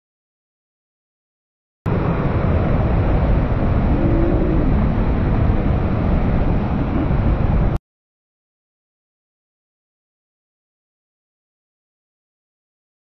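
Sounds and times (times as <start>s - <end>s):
river rushing over rocks: 1.9s - 7.8s.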